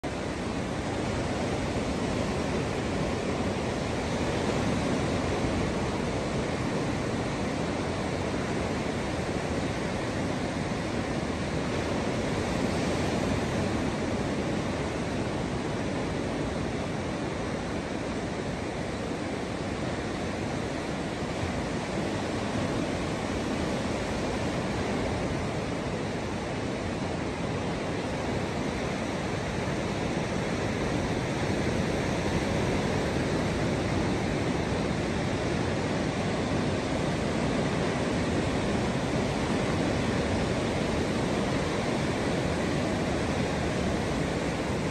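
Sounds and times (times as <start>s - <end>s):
small waves breaking on a beach: 0.0s - 44.9s.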